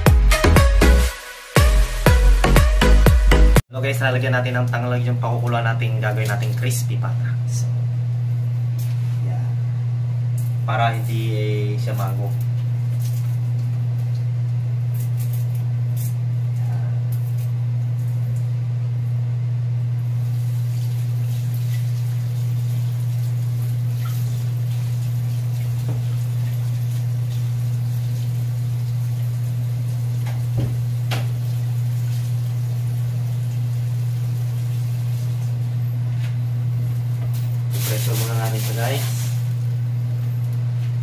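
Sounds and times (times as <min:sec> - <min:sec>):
steady low hum: 0:03.7 - 0:41.0
tap water running into sink: 0:20.4 - 0:35.6.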